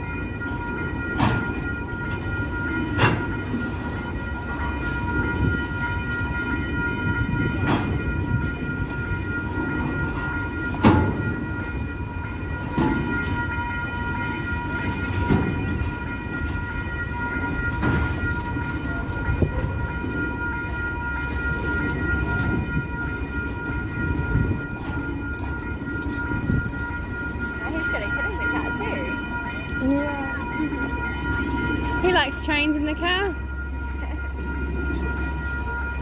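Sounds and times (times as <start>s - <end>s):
freight train wagons rumbling: 0.0s - 36.0s
high ringing tone: 0.0s - 36.0s
heavy wagon clunk: 0.6s - 1.9s, 10.7s - 11.6s, 14.6s - 16.7s, 17.6s - 18.7s.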